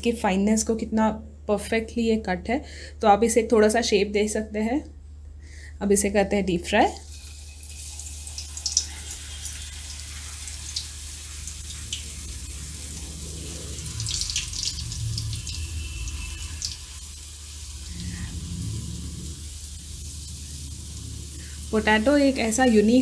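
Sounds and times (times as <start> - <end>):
oil sizzling with pops: 7.0 - 23.0.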